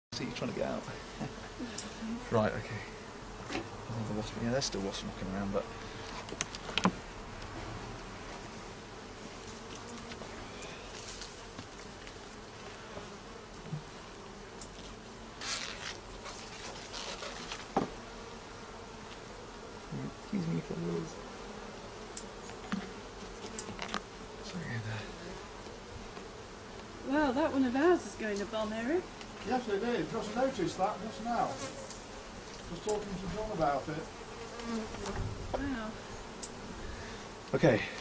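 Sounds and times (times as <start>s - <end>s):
bees buzzing: 0.1s - 38.0s.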